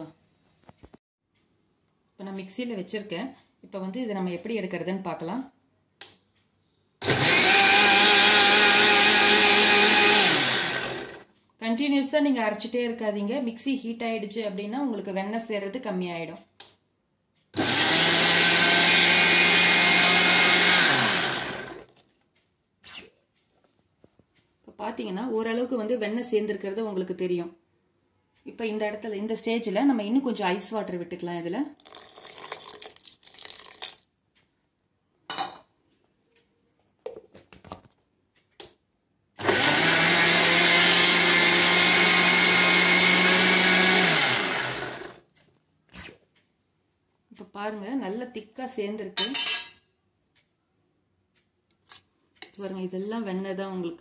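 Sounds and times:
mixer grinder running: 7.0 - 11.2, 17.6 - 21.9, 39.4 - 45.2.

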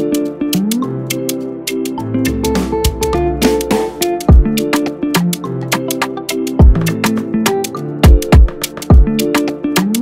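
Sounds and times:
held melodic notes: 0.0 - 9.6
deep kick drum thumps: 6.6 - 6.8.

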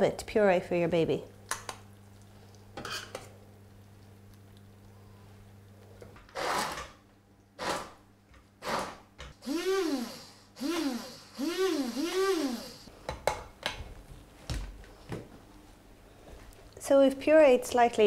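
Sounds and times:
stick blender whirring: 6.3 - 6.8, 8.6 - 12.9.

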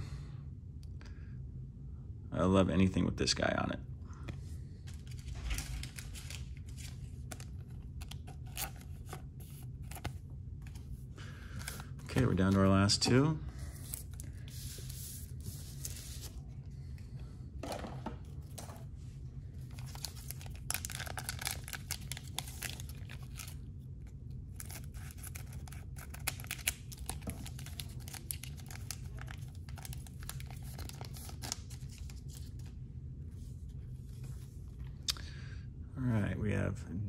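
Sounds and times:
foil wrapper crinkling: 19.7 - 23.6, 24.5 - 32.6.

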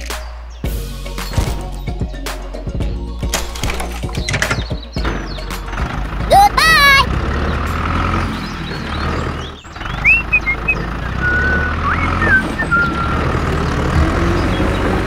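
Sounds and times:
tractor engine rumble: 3.2 - 15.0.

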